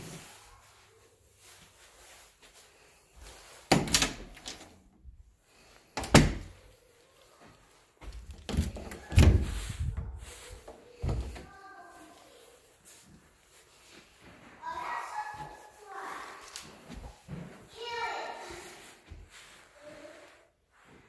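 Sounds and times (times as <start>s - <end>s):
doors opening and shutting: 3.7s - 4.8s, 6.0s - 6.6s, 8.1s - 9.8s
loud door thuds: 8.5s - 9.6s.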